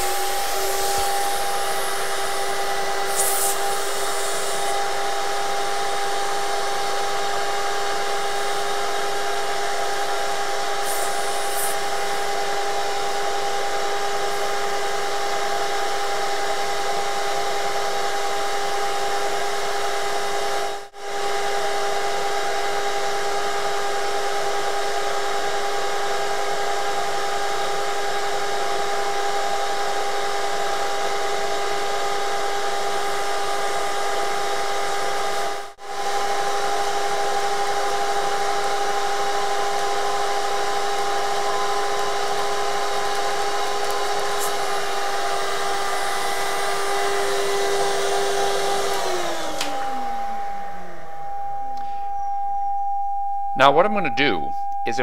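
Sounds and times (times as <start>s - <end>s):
pitched hum: 0.0s - 16.8s
vacuum running: 0.0s - 53.0s.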